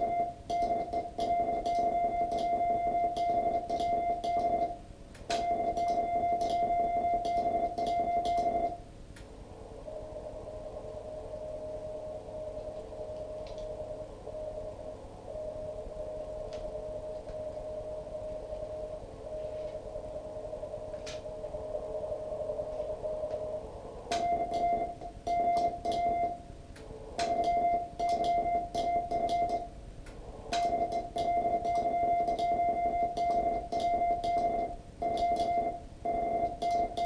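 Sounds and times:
faint morse signal: 0.0s - 4.8s, 5.4s - 8.9s, 9.5s - 37.0s
loud morse code beep: 0.0s - 4.8s, 5.4s - 8.8s, 24.2s - 26.4s, 27.2s - 29.7s, 30.6s - 37.0s
receiver hiss: 0.0s - 37.0s.

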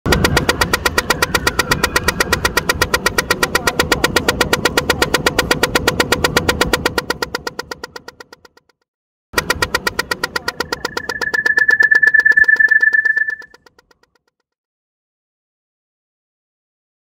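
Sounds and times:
crossing signal ticking rapidly: 0.1s - 8.6s, 9.4s - 13.8s.

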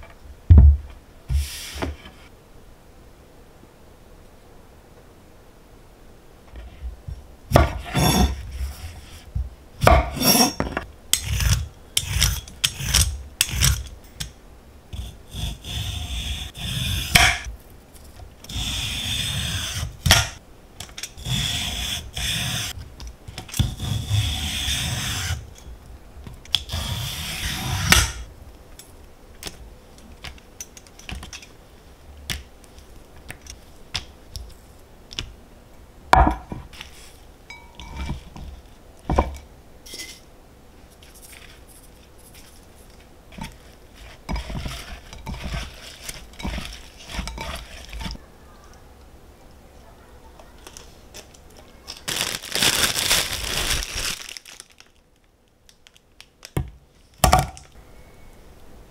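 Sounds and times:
knife sawing strokes: 15.0s - 17.5s, 18.5s - 20.4s, 21.2s - 22.7s, 23.6s - 25.4s, 26.7s - 28.2s, 44.0s - 48.2s
soft food handling sounds: 36.6s - 57.2s.

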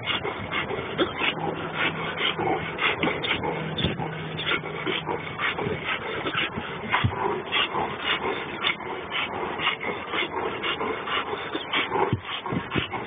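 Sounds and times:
dog breathing hard: 0.0s - 13.0s.

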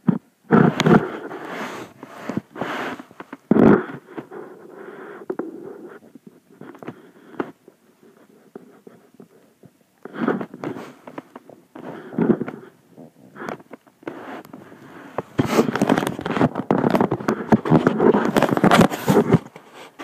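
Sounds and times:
louder rustling scrapes: 0.5s - 3.4s, 14.1s - 16.6s
soft rustling: 0.5s - 4.8s, 5.4s - 20.0s.

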